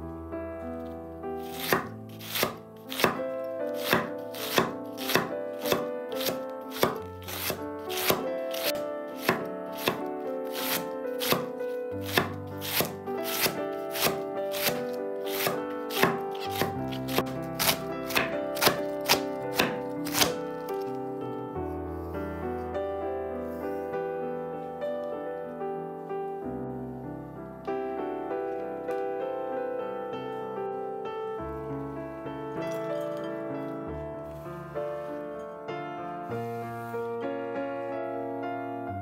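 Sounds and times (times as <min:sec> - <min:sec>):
soft piano music: 0:00.0 - 0:39.0
knife chopping on cutting board: 0:01.4 - 0:20.4.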